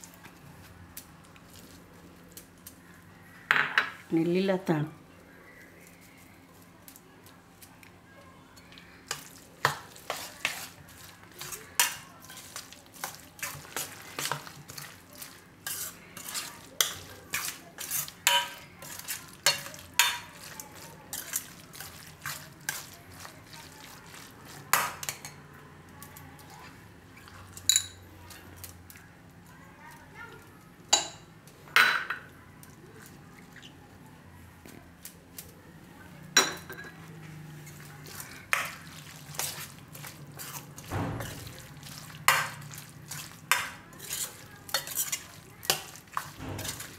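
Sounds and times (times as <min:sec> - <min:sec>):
spoon scraping metal bowl: 0:15.6 - 0:20.3, 0:37.6 - 0:46.9.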